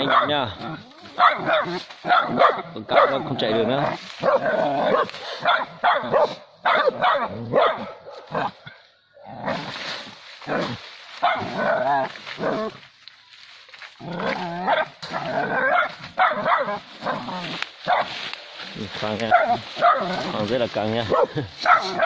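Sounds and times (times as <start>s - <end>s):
dogs barking and yelping: 0.0s - 8.8s, 10.5s - 12.8s, 14.1s - 18.3s, 19.2s - 20.4s, 21.0s - 22.0s.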